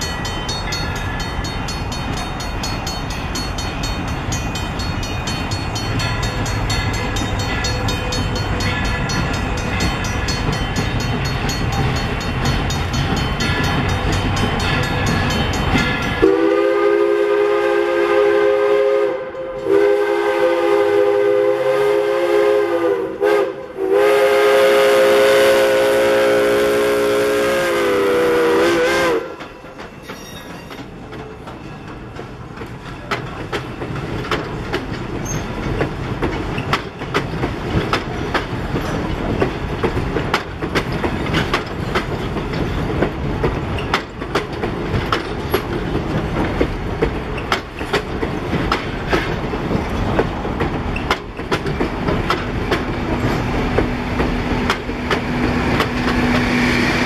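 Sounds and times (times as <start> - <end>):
train rumble: 0.0 - 57.0
train wheels clacking over rails: 0.0 - 57.0
steam locomotive whistle: 16.2 - 30.8, 55.2 - 57.0.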